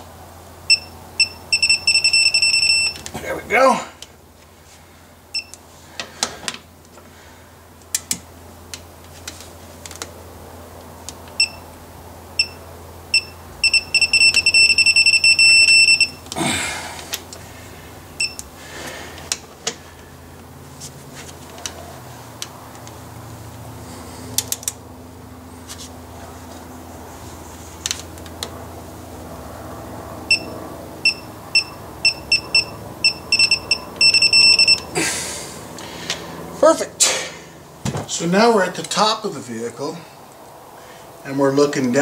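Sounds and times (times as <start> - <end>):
torque wrench beeping: 0.7 - 3.1, 5.4 - 5.6, 12.4 - 16.3, 18.2 - 18.5, 30.3 - 34.9.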